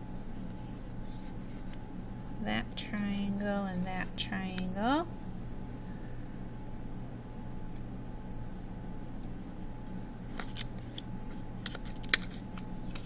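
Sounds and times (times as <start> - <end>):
low room hum: 0.0 - 13.0
paper pieces clicking and rustling: 10.2 - 13.0.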